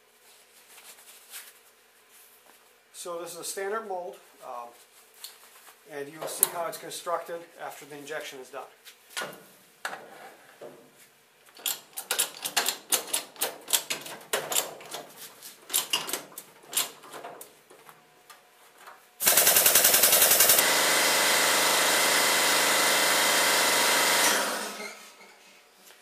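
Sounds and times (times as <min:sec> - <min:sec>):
loud machine whir: 0:19.2 - 0:25.2.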